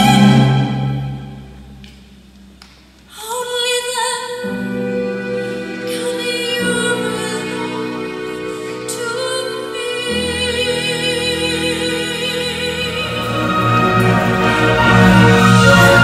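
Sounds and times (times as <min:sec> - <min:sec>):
instrumental accompaniment: 0:04.5 - 0:16.0.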